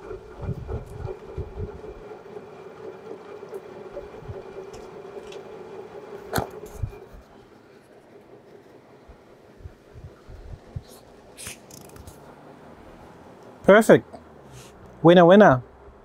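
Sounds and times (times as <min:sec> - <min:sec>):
water filling washing machine: 0:00.0 - 0:12.4.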